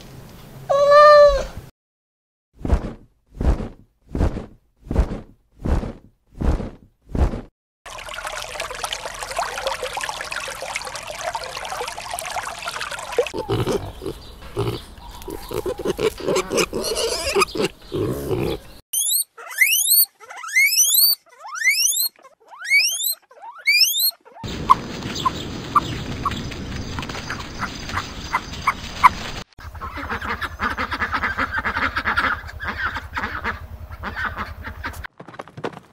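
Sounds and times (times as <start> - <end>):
pigs grunting: 13.3 - 18.8.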